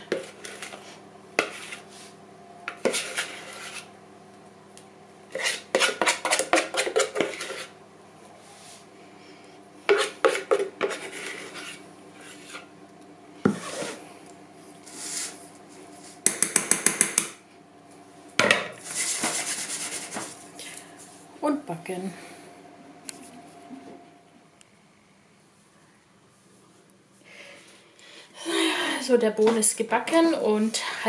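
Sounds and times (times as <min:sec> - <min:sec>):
spoon scraping batter from bowl: 0:00.1 - 0:02.1, 0:02.7 - 0:03.9, 0:05.3 - 0:07.7, 0:09.9 - 0:12.7, 0:13.5 - 0:14.0.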